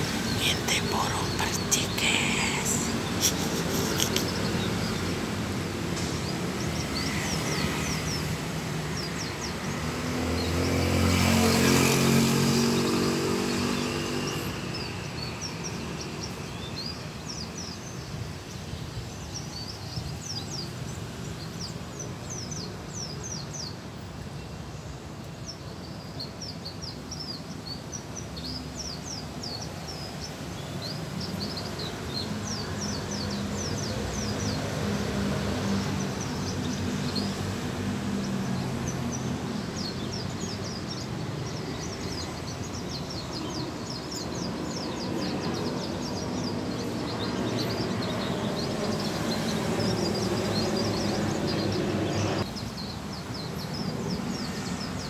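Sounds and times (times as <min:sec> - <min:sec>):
birds chirping high and thin: 0:00.0 - 0:55.0
vehicle engine passing: 0:10.0 - 0:14.2.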